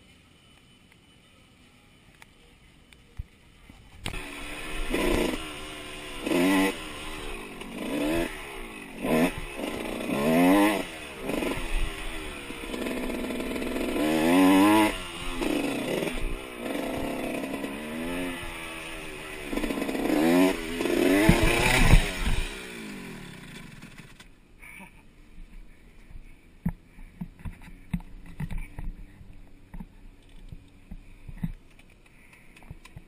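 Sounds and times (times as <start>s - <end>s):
dirt bike engine revving: 4.0s - 24.3s.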